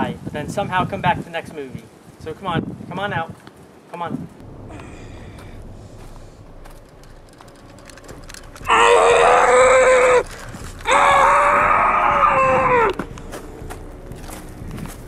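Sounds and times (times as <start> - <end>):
boy screaming: 8.6 - 13.0.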